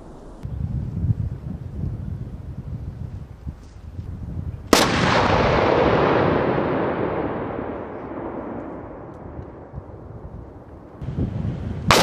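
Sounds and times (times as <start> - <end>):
demolition blast with rolling rumble: 4.6 - 12.0.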